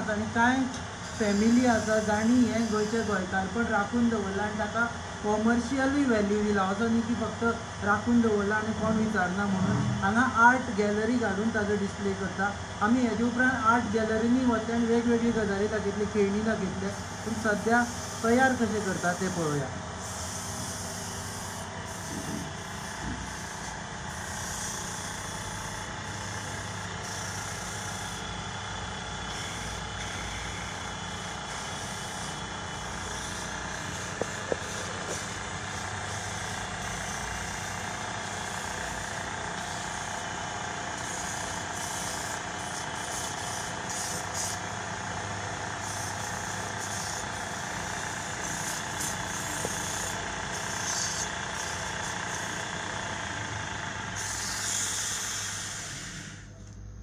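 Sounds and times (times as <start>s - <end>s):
wood lathe running: 0.0s - 6.6s, 15.5s - 56.5s.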